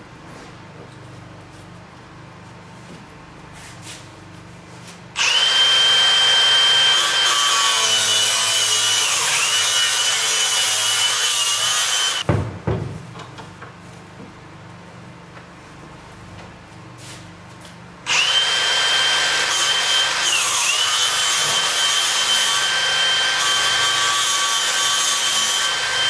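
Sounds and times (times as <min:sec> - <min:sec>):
power tool high whine: 0:05.2 - 0:12.2, 0:18.1 - 0:26.0.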